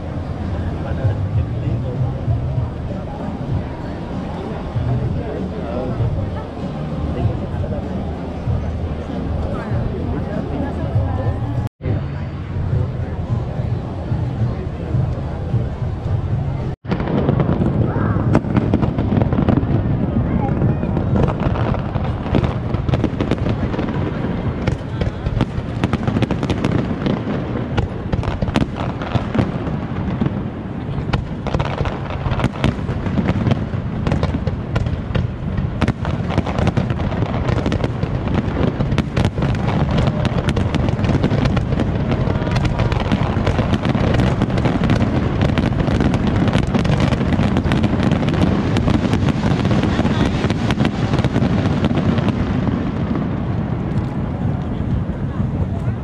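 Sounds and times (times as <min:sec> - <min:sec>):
continuous low rumble: 0:00.0 - 0:56.0
fireworks bursting with sharp bangs: 0:00.0 - 0:56.0.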